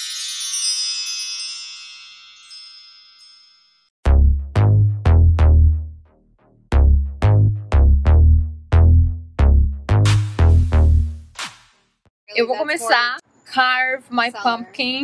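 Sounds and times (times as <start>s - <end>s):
chiming tone: 0.0s - 3.9s
electronic bass drum hits: 4.0s - 11.4s.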